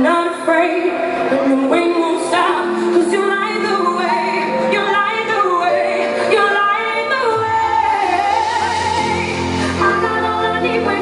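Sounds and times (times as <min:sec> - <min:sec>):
woman singing: 0:00.0 - 0:11.0
band accompaniment: 0:07.2 - 0:11.0.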